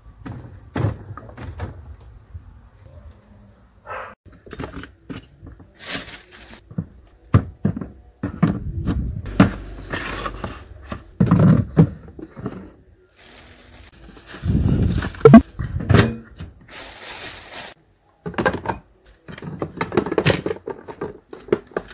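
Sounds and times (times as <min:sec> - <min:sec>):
knocks and clunks of groceries: 0:00.2 - 0:02.2, 0:04.3 - 0:14.0, 0:15.0 - 0:21.9
rustling and scraping: 0:08.4 - 0:15.8.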